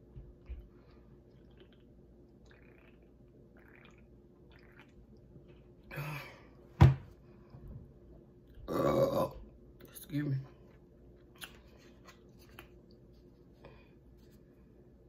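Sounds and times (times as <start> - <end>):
person gulping from a can: 1.2 - 6.0.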